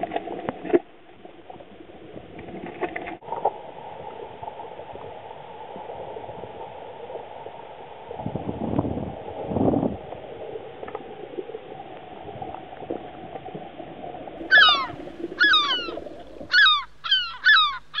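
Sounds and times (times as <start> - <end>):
underwater water rush: 0.0 - 18.0
short descending pitched calls: 14.4 - 18.0.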